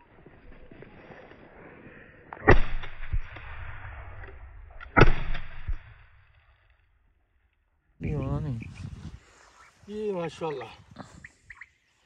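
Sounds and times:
shotgun shots: 0:02.4 - 0:03.2, 0:04.9 - 0:06.1.

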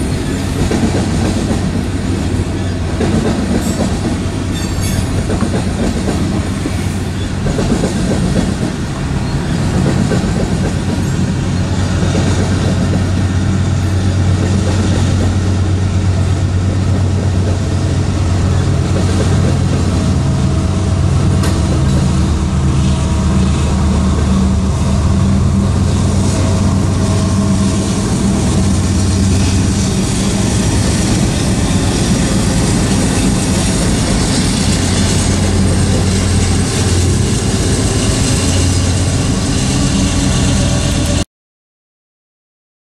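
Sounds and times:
train wheels clattering on rails: 0:00.0 - 0:25.0, 0:25.6 - 0:41.2
diesel locomotives passing: 0:00.0 - 0:41.2
diesel engine drone: 0:08.7 - 0:41.2.

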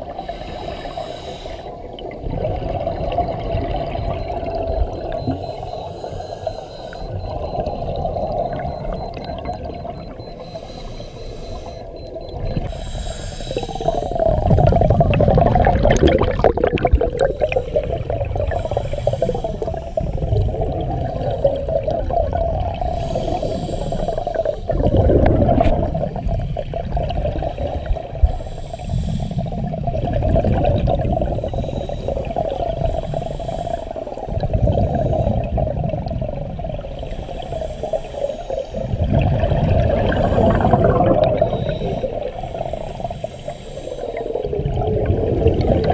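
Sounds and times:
steady hum: 0:00.0 - 0:35.7
regulator bubbles rumbling underwater: 0:00.0 - 0:45.9.

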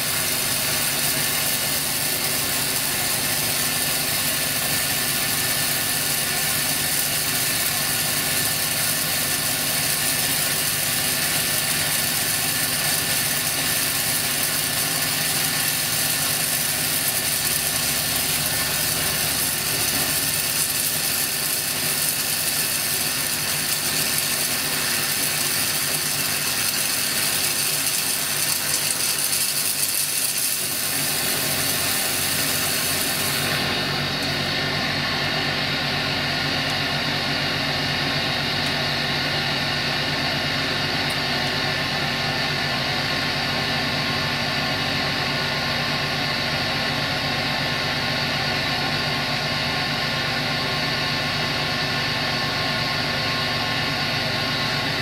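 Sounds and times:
electric arc crackling in water: 0:00.0 - 0:34.4.

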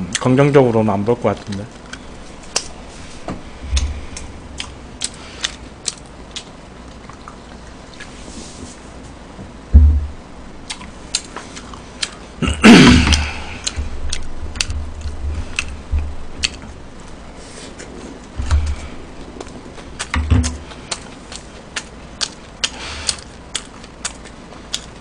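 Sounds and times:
person chewing: 0:01.4 - 0:08.2, 0:10.6 - 0:12.4, 0:13.0 - 0:25.0
low thump: 0:09.7 - 0:10.2
breathy groan: 0:12.4 - 0:14.0.

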